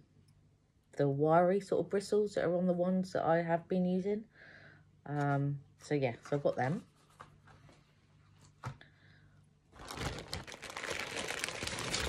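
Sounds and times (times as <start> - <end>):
plastic packaging crinkling: 9.7 - 12.0.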